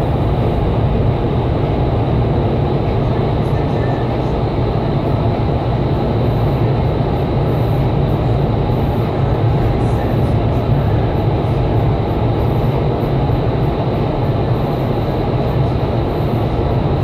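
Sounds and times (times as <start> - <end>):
loud rush of fan air: 0.0 - 17.0.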